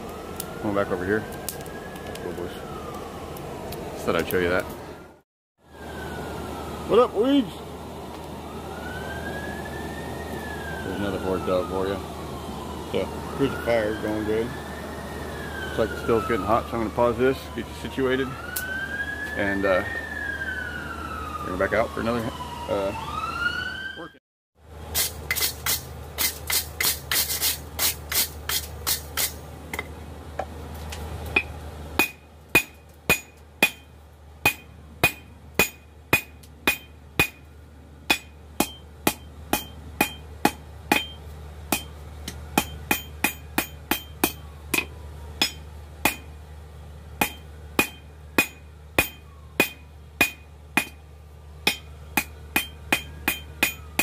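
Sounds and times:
hammer striking anvil: 31.4 - 37.5, 38.1 - 46.3, 47.2 - 51.0, 51.6 - 54.0.

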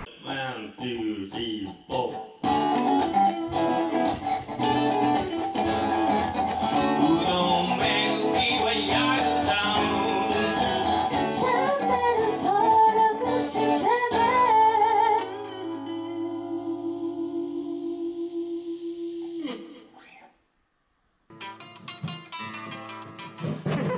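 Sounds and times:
acoustic and electric guitars strumming: 0.0 - 17.8, 21.3 - 23.9
woman singing: 11.1 - 19.8.

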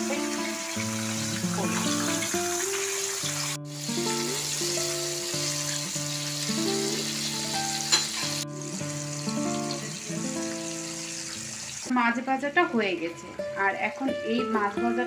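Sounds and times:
fish sizzling in hot oil: 0.0 - 11.9
background music with held notes: 0.0 - 15.0.

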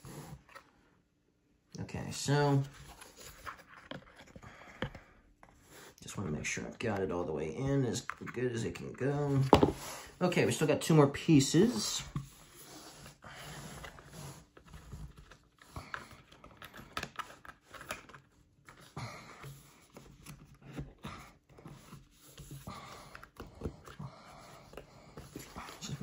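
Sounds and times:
cardboard pieces tapping and scraping: 14.6 - 26.0.

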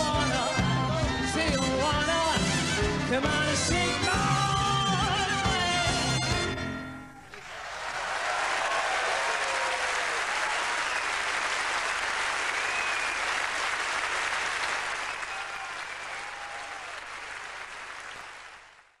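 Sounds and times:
audience applauding: 7.2 - 19.0.

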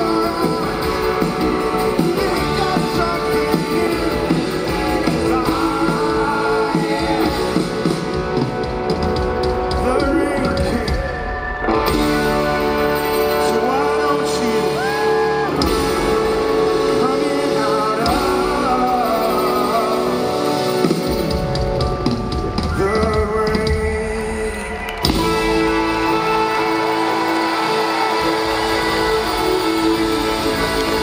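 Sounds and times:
man singing long held notes: 0.0 - 8.2, 13.2 - 20.8
live rock band playing: 0.0 - 31.0.

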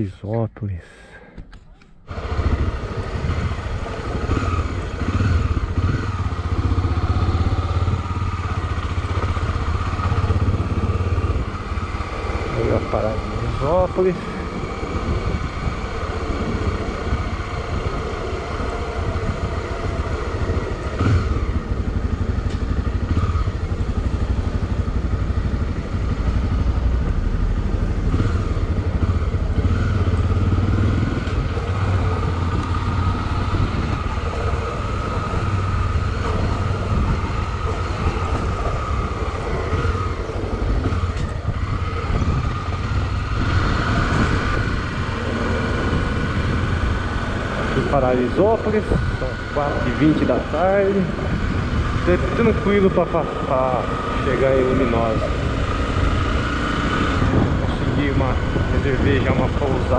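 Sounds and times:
motorcycle engine running: 2.0 - 59.9.

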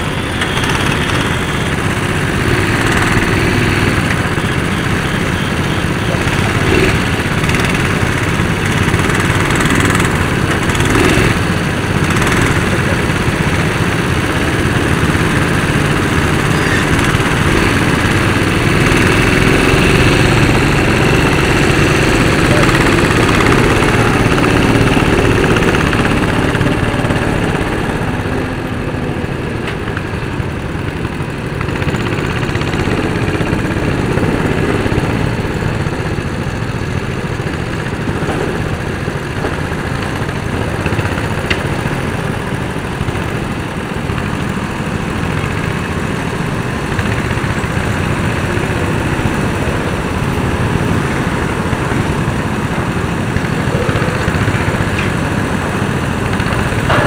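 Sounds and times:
go-kart engines droning: 0.0 - 57.0.

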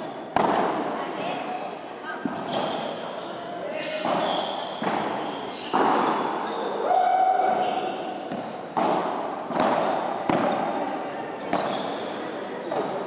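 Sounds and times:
ball bouncing on court: 8.3 - 10.7.

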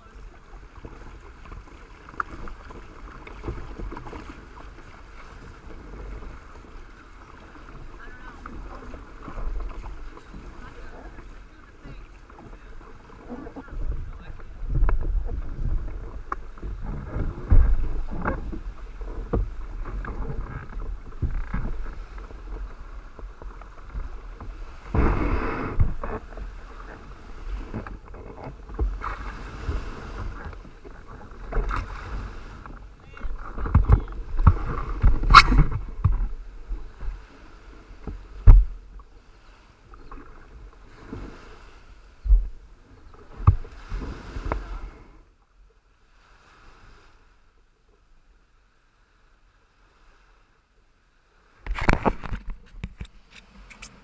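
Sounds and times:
water splashing around hull: 0.0 - 54.0
wind buffeting microphone: 12.6 - 38.9.

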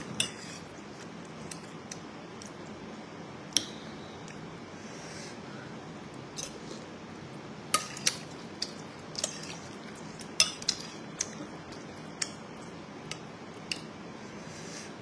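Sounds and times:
cutlery clinking on ceramic bowl: 10.4 - 10.9.

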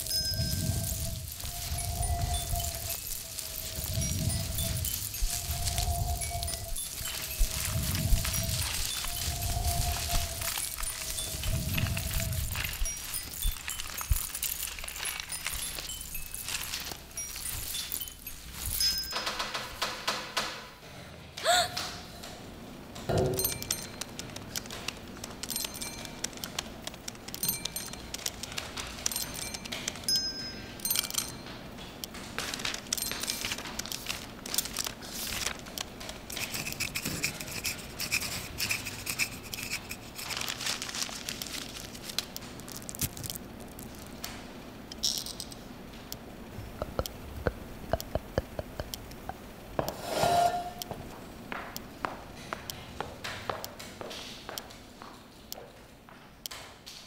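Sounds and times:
scraping and rustling: 0.0 - 19.5, 32.2 - 44.2
ringing bell-like pings: 0.0 - 19.6, 23.1 - 24.1, 25.5 - 26.5, 27.4 - 28.2, 29.0 - 31.6
small taps and clicks: 46.1 - 50.0.

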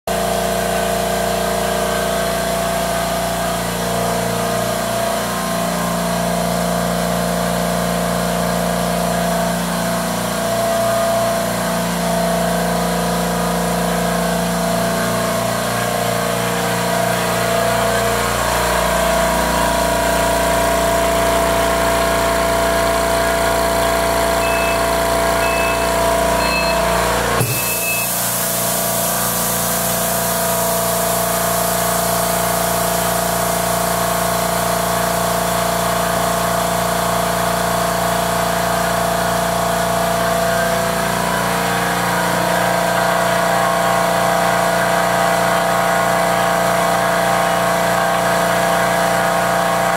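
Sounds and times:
air compressor humming: 0.1 - 49.9.

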